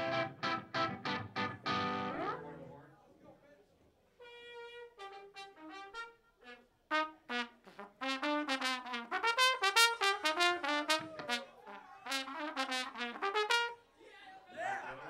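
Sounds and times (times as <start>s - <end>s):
trombone playing short notes: 4.2s - 13.8s
trumpet playing short notes: 4.2s - 13.8s.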